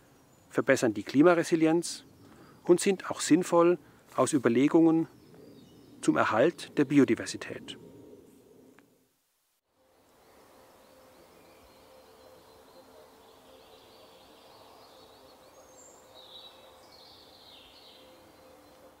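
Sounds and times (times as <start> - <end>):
loud bird calls: 10.5 - 19.0.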